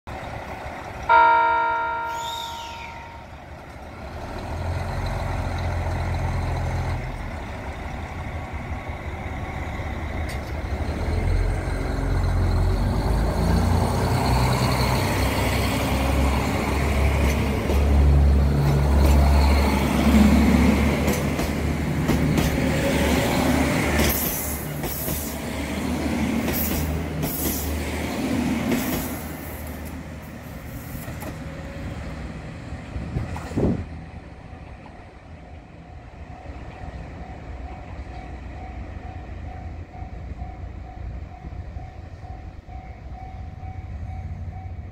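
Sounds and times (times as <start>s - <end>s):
diesel train engine rumbling: 0.1s - 44.9s
train horn: 1.1s - 3.4s.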